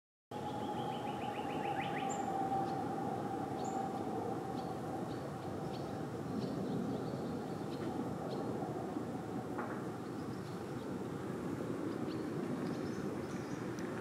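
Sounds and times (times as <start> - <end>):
steady hum: 0.3 - 10.4
small birds chirping: 0.4 - 8.6.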